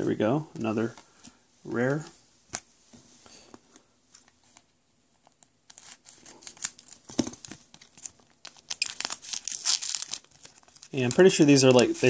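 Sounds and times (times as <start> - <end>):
foil wrapper crackling: 5.7 - 12.0.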